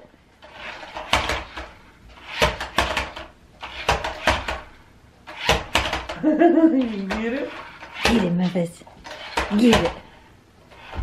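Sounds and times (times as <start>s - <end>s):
remote-control car clattering: 9.0s - 10.0s.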